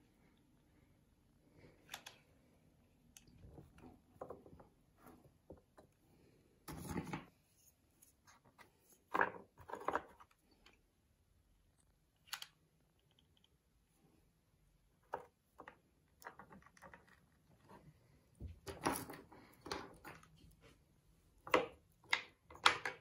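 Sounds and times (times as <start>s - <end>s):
wooden sticks clicking and knocking: 21.4s - 23.0s.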